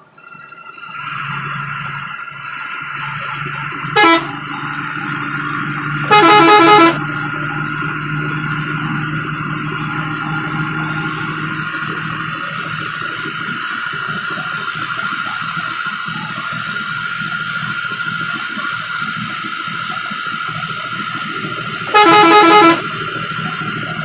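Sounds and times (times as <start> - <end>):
bus engine running whine: 0.0 - 24.0
bus horn blasts: 3.8 - 7.8, 21.3 - 23.5.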